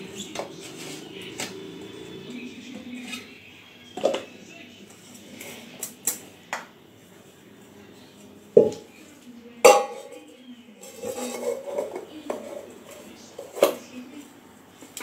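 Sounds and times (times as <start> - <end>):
metal pot scraping on tiled floor: 0.0 - 2.2, 9.7 - 13.8
metal pot clanging: 8.6 - 8.9, 9.6 - 10.2, 10.8 - 12.4.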